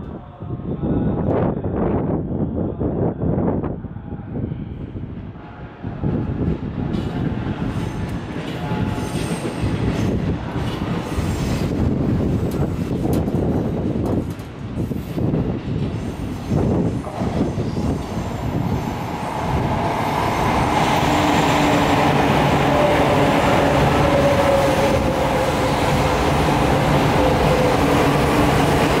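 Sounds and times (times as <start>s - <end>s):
train wheels rumbling: 6.3s - 29.0s.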